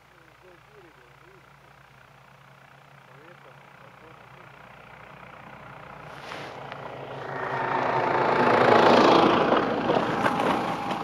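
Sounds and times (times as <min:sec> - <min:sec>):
snowmobile engine passing by: 0:05.9 - 0:11.0.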